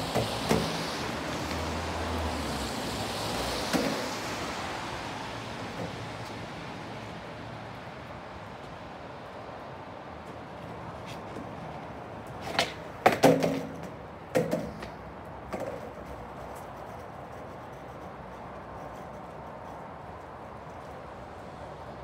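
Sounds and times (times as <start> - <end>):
skateboard clacks on paving: 0.0 - 4.7, 10.2 - 21.1.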